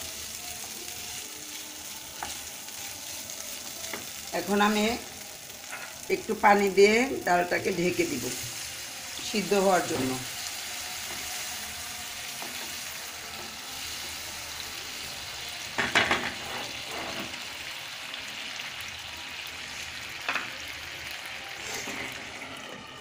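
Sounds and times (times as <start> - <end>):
lentils sizzling in a frying pan: 0.0 - 23.0.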